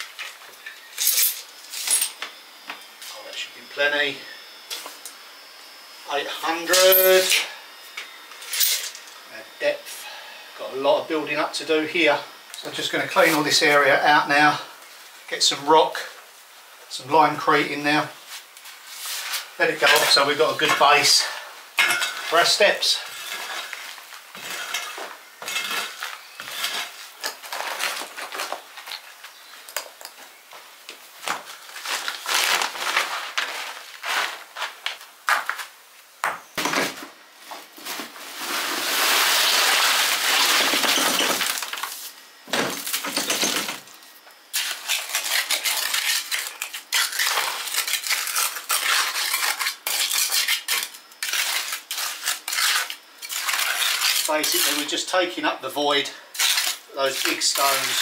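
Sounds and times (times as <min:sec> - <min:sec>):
rake scraping stony dirt: 0:06.4 - 0:07.4, 0:12.6 - 0:14.5, 0:18.3 - 0:29.0, 0:31.5 - 0:34.9, 0:37.8 - 0:42.1, 0:44.5 - 0:55.1, 0:55.9 - 0:58.0
trowel scraping: 0:21.8 - 0:29.0, 0:44.5 - 0:55.0, 0:56.3 - 0:58.0
wet mix sliding from wheelbarrow: 0:23.0 - 0:24.9, 0:37.8 - 0:41.5.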